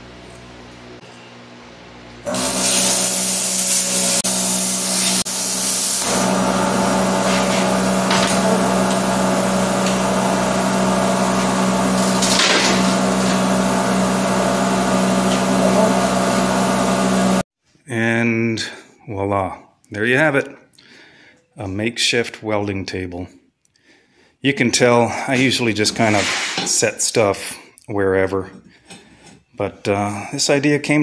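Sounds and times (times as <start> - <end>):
plasma cutter arc hissing: 2.3 - 6.3
steady hum: 3.8 - 17.4.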